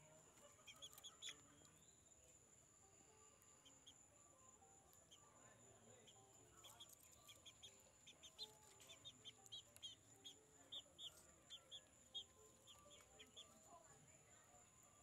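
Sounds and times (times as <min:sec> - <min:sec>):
chick peeping: 0:00.2 - 0:02.1, 0:03.4 - 0:04.2, 0:04.9 - 0:13.8.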